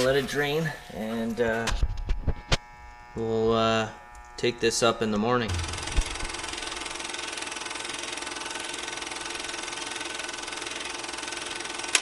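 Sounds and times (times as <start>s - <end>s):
rapid mechanical clatter: 5.5s - 12.0s.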